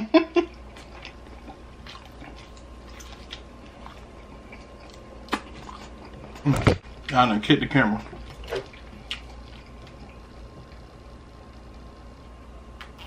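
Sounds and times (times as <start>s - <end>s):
person chewing: 0.5s - 6.8s, 8.0s - 10.9s.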